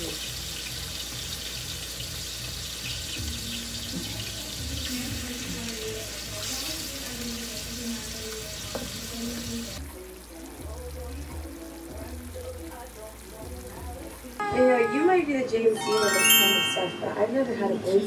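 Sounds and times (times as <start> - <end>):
soft melody: 14.4 - 17.5.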